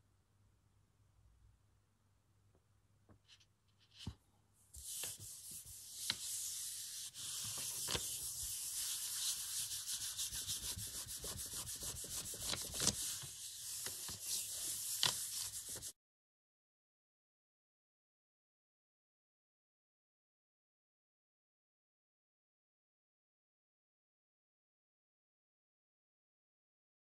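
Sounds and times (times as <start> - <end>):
hand rubbing on paper: 4.8 - 15.9.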